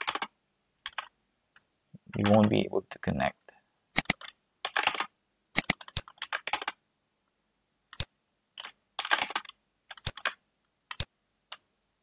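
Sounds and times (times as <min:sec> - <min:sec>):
computer keyboard typing: 0:00.0 - 0:01.1, 0:02.1 - 0:02.6, 0:04.0 - 0:06.8, 0:08.0 - 0:11.6.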